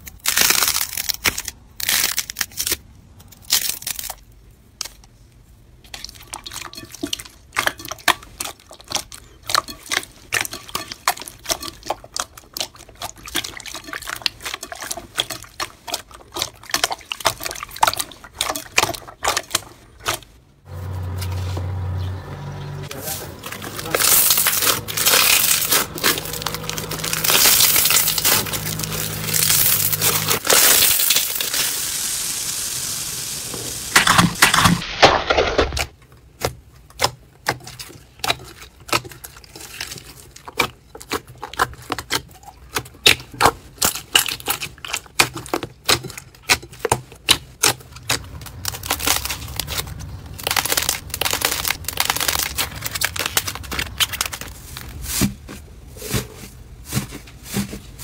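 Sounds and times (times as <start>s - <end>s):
slime crackling: 23.4s - 32.4s, 46.8s - 55.2s.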